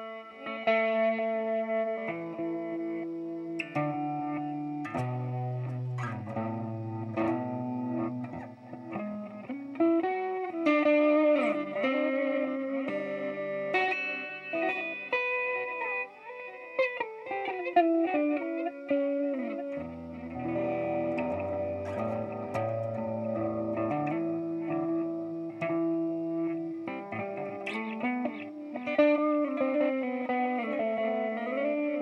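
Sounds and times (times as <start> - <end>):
electric guitar with reverse delay: 10.8 - 32.0.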